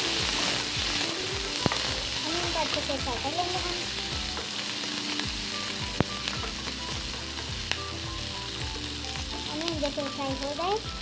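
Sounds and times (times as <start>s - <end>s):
onions sizzling in hot oil: 0.0s - 11.0s
wooden spatula clicking on pan: 1.6s - 1.9s.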